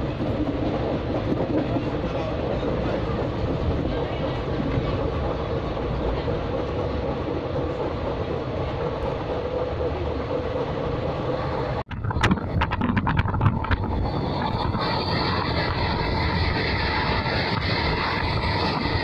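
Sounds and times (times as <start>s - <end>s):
train running: 0.0s - 19.0s
irregular clacks and knocks: 11.9s - 14.1s.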